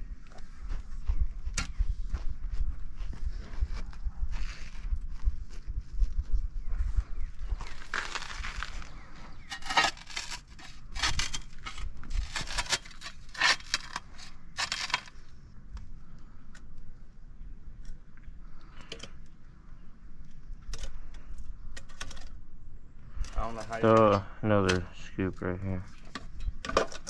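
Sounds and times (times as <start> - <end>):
shovel scraping sand: 7.6 - 15.2.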